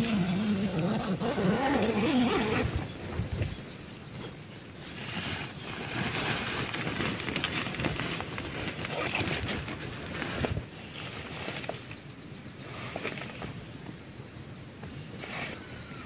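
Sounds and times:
tent zipper unzipping: 0.0 - 2.9, 8.8 - 9.4
tent fabric rustling: 0.0 - 3.6, 4.2 - 12.0.

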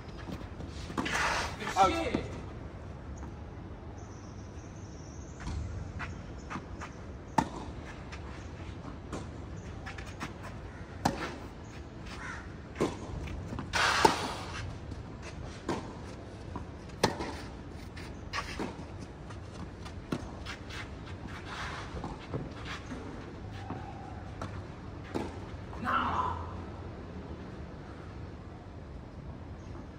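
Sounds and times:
tennis ball bouncing: 7.3 - 7.8, 11.0 - 11.5, 12.7 - 14.4, 15.6 - 17.4
racket hitting tennis ball: 16.9 - 17.5.

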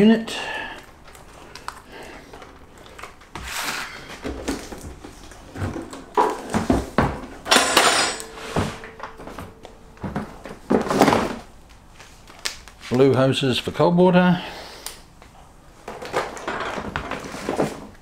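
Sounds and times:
plastic wrapping rustling: 0.8 - 7.0, 8.2 - 13.2.

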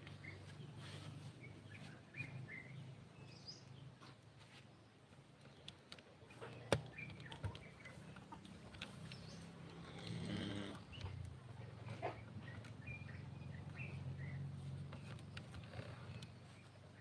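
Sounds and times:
chickens clucking: 6.0 - 10.0, 10.7 - 15.4.

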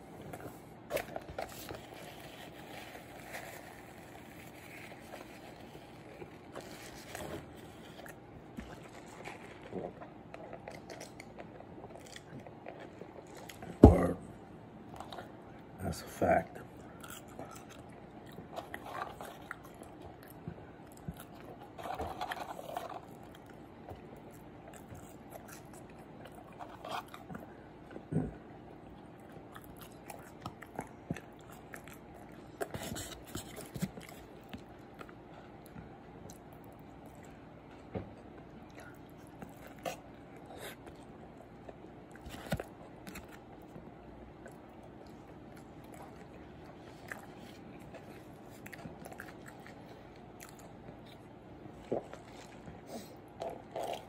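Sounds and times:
chewing and biting burger: 0.4 - 13.8, 16.7 - 54.0.

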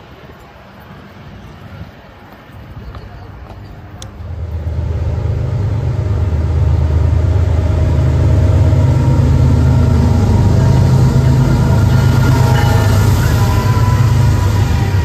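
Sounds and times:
diesel locomotive engine droning: 0.0 - 15.0.

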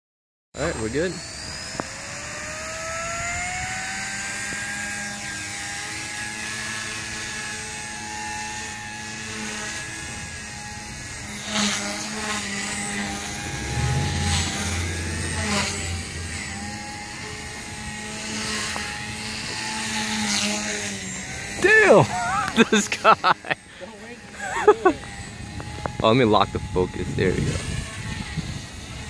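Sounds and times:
rc helicopter motor whine: 0.6 - 29.0
wind buffeting microphone: 12.5 - 18.5.

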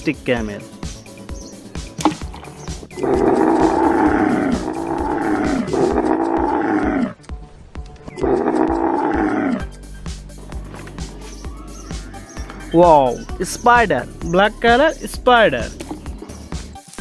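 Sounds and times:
camel calling loudly: 2.9 - 7.2, 8.2 - 9.8.

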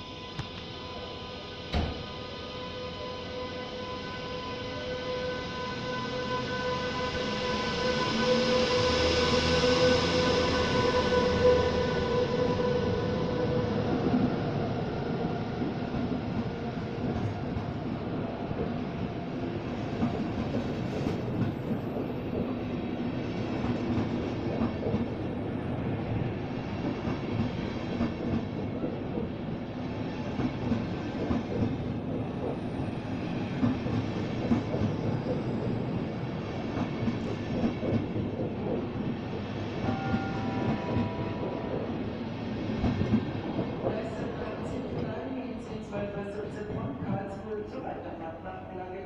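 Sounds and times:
train wheels rumbling on rails: 5.5 - 47.8.

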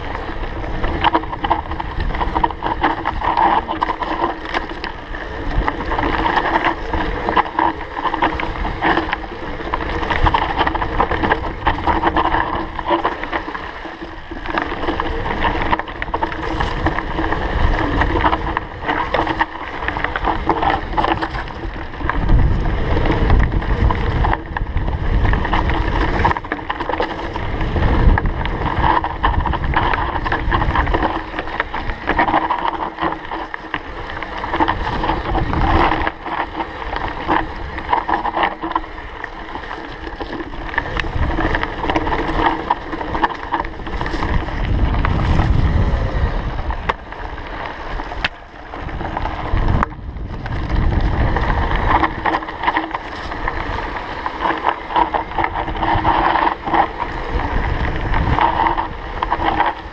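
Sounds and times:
bike rattling over rocks: 0.0 - 59.9
wind buffeting microphone: 0.0 - 59.9.

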